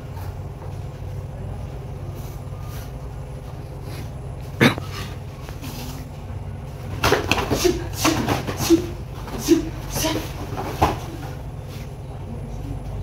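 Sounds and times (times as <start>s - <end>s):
bare feet slapping on mats: 6.9s - 11.4s.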